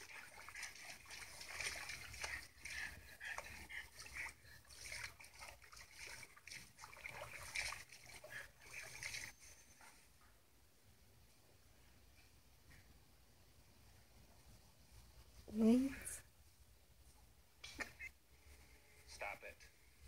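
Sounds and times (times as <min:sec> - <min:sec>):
water splashing through small speaker: 0:00.0 - 0:09.4.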